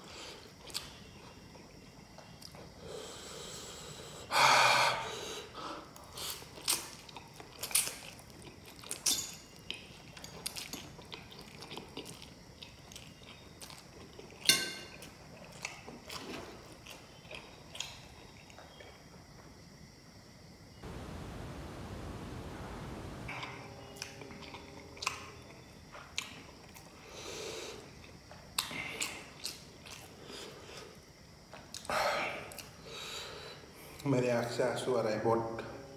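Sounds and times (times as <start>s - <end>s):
wet chewing and lip smacks: 28.0s - 30.2s.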